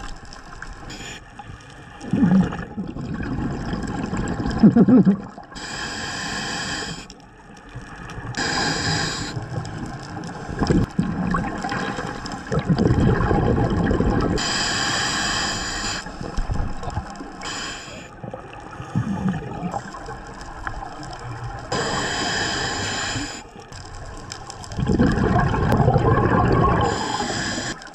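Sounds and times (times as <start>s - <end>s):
gurgling exhaled bubbles: 2.0s - 5.6s, 8.0s - 14.6s, 16.1s - 27.9s
hissing regulator inhalations: 5.5s - 7.2s, 8.4s - 9.5s, 14.4s - 16.4s, 17.3s - 18.2s, 21.7s - 23.6s, 26.7s - 27.9s.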